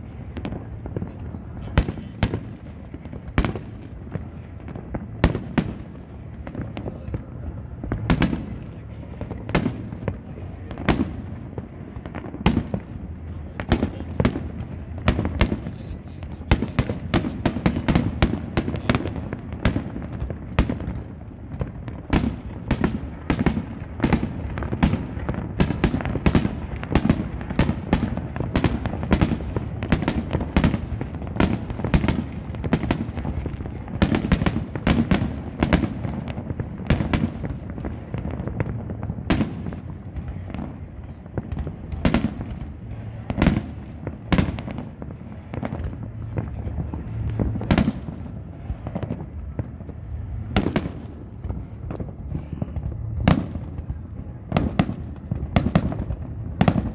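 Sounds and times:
low rumble: 0.0 - 18.6, 44.9 - 56.6
fireworks bangs and crackles: 0.0 - 56.9.

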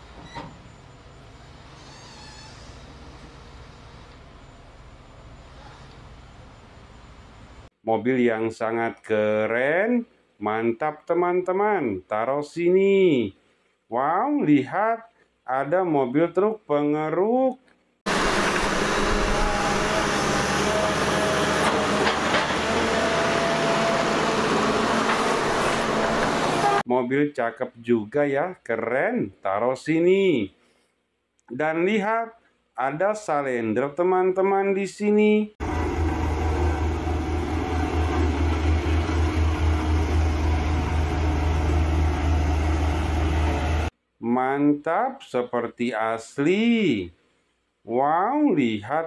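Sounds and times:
faint wavering whine: 3.2 - 7.7
excavator running: 18.1 - 26.8, 35.6 - 43.9
road roller diesel engine rumbling: 18.1 - 26.8, 35.6 - 43.9.

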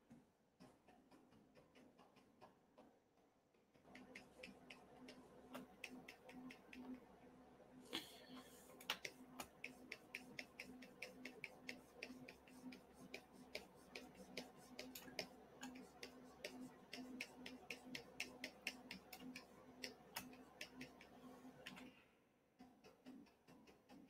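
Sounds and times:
rapid light clicking: 3.8 - 7.0, 8.8 - 21.9
faint low hum: 3.8 - 22.4.

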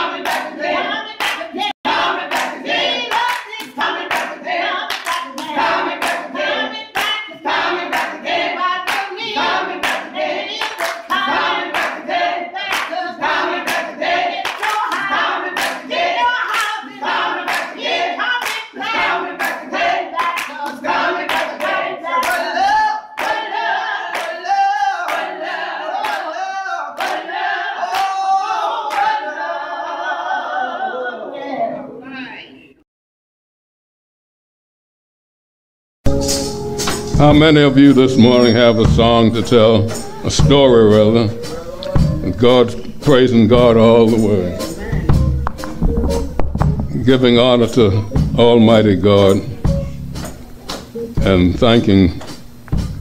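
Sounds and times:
group singing gospel: 0.0 - 32.0, 36.5 - 51.4
hand clapping: 0.2 - 0.5, 1.2 - 1.5, 2.3 - 6.3, 7.0 - 7.2, 7.9 - 8.2, 8.9 - 9.1, 9.8 - 12.0, 12.7 - 13.0, 13.6 - 15.8, 16.5 - 16.8, 17.5 - 17.8, 18.4 - 19.6, 20.2 - 22.5, 23.2 - 23.5, 24.1 - 24.4, 25.1 - 25.3, 26.0 - 26.2, 27.0 - 27.2, 44.1 - 46.8, 52.2 - 52.9.

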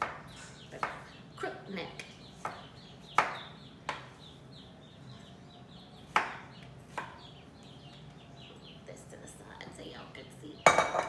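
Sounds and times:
faint high chirping: 0.0 - 11.0
knife chopping on plastic board: 6.1 - 7.3.

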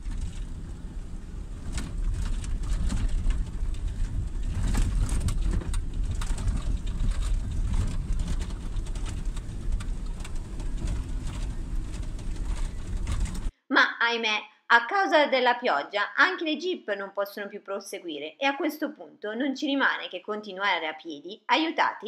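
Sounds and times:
engine and tyres rumbling: 0.0 - 13.5
knocks and rattles from bumps: 0.0 - 13.5.

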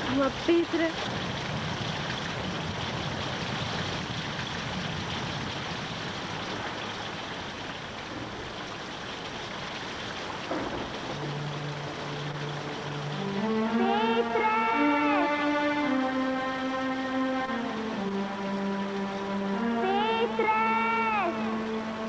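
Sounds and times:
water rushing hiss: 0.0 - 22.0
low sustained music tones: 10.5 - 22.0.

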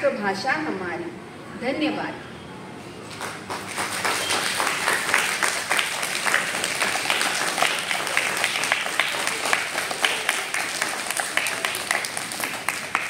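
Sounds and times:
children clapping: 3.1 - 13.0.

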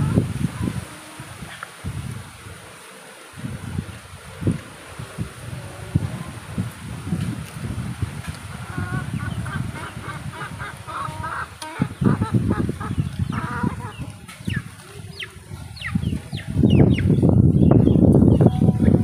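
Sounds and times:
chickens clucking: 0.0 - 2.2, 5.5 - 19.0.

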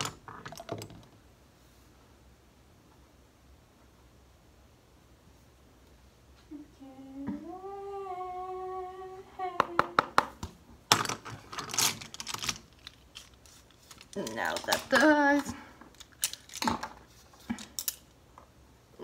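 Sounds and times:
person humming: 6.5 - 10.2.

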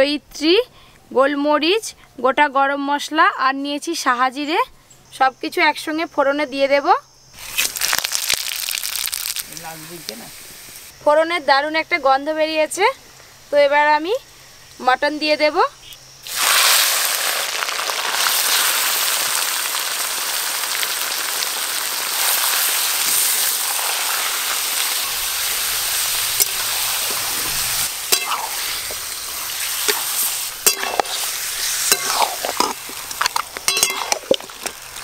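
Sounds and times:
meat sizzling in hot oil: 7.4 - 11.0, 16.2 - 35.0
metal spatula scraping a pan: 26.4 - 34.8.

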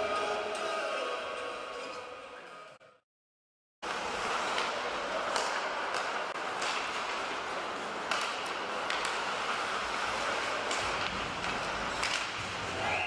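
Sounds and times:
arena noise: 3.9 - 13.0
hockey sticks striking puck: 3.9 - 13.0
skates scraping on ice: 3.9 - 13.0.

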